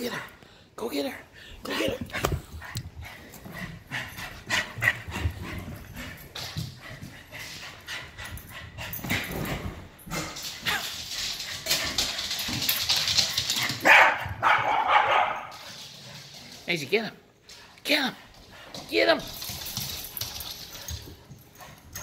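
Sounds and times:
dogs barking and yipping: 10.3 - 15.8.

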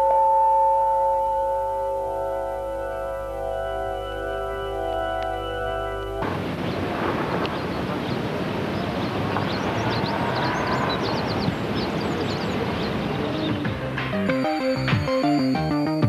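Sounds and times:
wind on microphone: 6.2 - 13.8.

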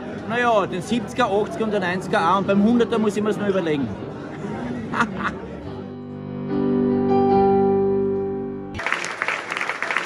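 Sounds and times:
keyboard chord: 5.8 - 8.8
people applauding: 8.8 - 10.0.

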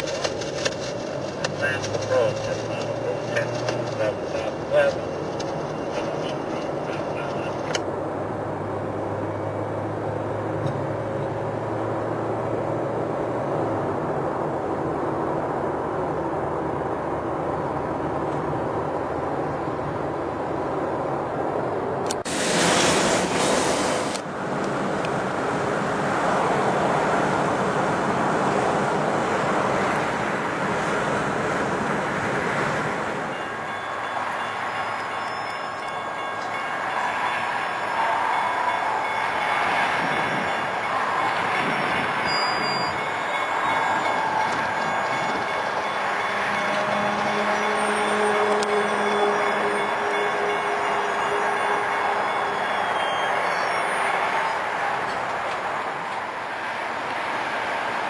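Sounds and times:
car cabin road noise: 0.0 - 33.7
harsh hiss: 22.3 - 24.2.

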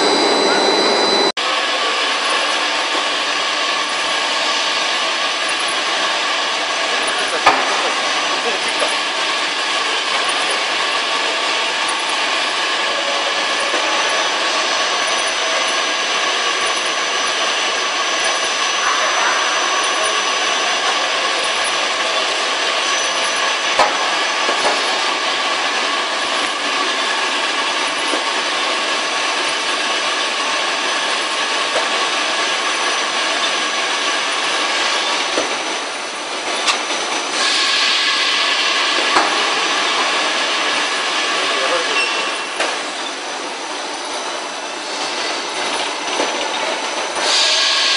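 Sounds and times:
high whine: 0.0 - 2.9
industrial machinery running: 0.0 - 47.9.

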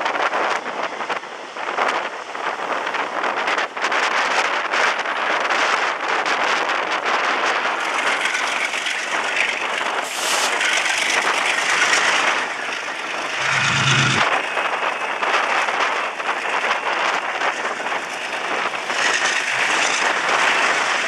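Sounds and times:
diesel locomotive engine: 7.6 - 21.0
brief high hiss: 10.0 - 10.6
deep low drone: 11.6 - 14.4, 19.1 - 20.8
wind rush on microphone: 16.1 - 21.0.

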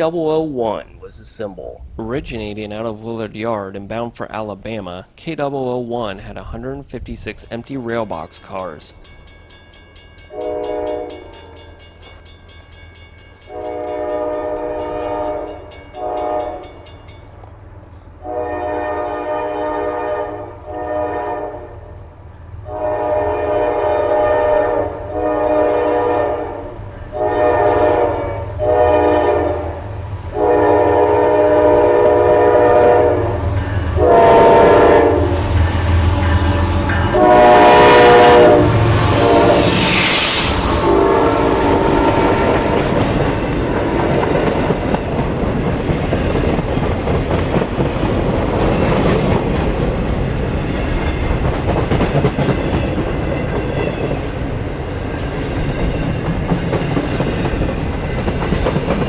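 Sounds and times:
train horn blasts: 10.3 - 11.6, 13.5 - 16.9, 18.2 - 22.0, 22.6 - 44.6
wheel and rail noise: 32.6 - 59.0.

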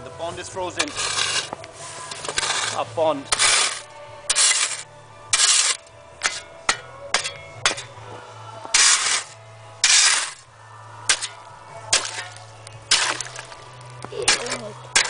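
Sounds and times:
spade scraping through ice and snow: 0.6 - 8.0, 8.7 - 10.5, 11.1 - 13.6, 14.2 - 15.0
spade blade chinking on ice: 2.1 - 8.0, 8.8 - 10.4, 11.1 - 13.4, 14.2 - 15.0.

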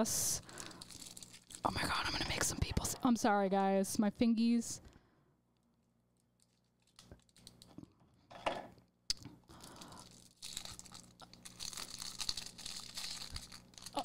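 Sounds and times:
plastic wrapping crinkling: 0.4 - 2.5, 6.2 - 7.8, 9.5 - 14.0.

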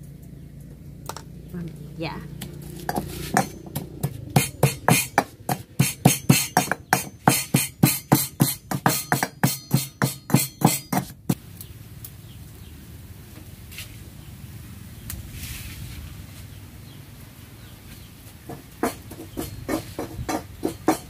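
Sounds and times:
metal pestle pounding in mortar: 2.4 - 11.4, 18.5 - 21.0.

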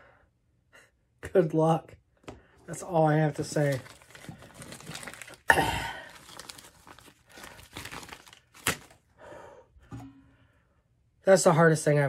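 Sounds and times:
packaging crinkling and rustling: 2.7 - 9.1.

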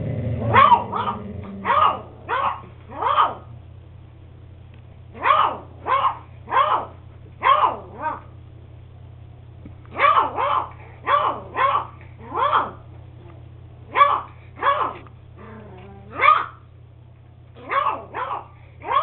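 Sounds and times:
puppy barking: 0.4 - 3.5, 5.1 - 8.3, 9.9 - 12.9, 13.9 - 15.1, 16.1 - 16.7, 17.6 - 19.0.

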